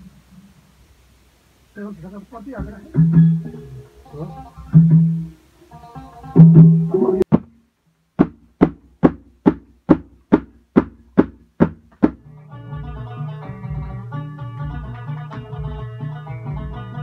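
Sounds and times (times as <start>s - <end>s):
hand drum strikes: 2.6s - 3.8s, 4.6s - 5.4s, 6.3s - 7.5s, 8.2s - 12.2s
plucked-string music: 2.6s - 7.3s, 12.2s - 17.0s.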